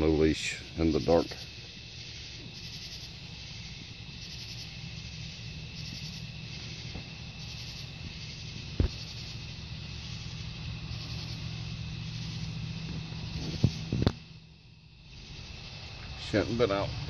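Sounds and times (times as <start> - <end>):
insect high trill: 0.0 - 17.0
low steady hum: 0.0 - 17.0
pulsed high insect call: 0.0 - 17.0
short thump: 8.8 - 9.1.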